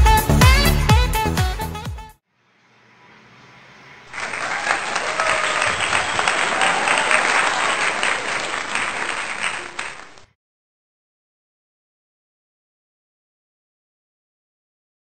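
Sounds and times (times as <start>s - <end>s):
crowd applause: 4.1s - 10.3s.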